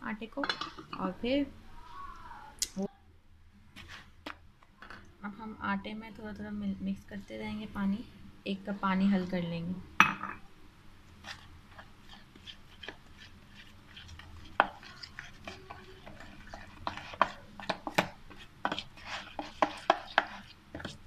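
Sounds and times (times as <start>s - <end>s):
spoon scraping plastic bowl: 11.2s - 21.0s.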